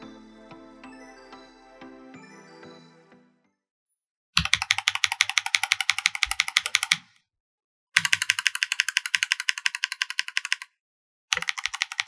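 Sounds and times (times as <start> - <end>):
mechanical keyboard clacking: 4.4 - 7.1, 8.0 - 10.7, 11.3 - 12.0.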